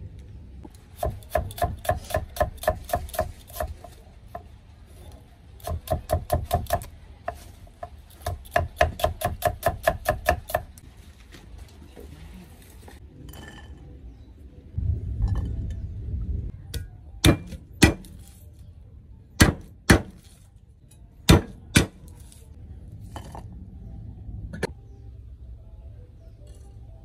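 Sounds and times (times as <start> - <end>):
low rustling handling noise: 10.8 - 13.1.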